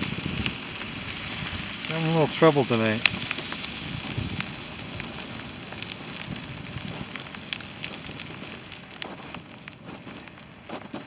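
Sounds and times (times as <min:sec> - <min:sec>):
fire hissing and crackling: 0:00.0 - 0:11.0.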